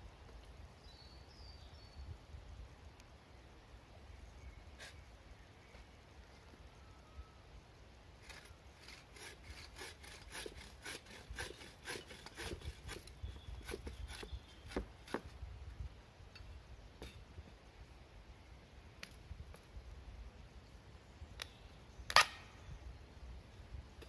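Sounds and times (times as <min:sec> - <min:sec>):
hand saw cutting wood: 0:08.2 - 0:15.2.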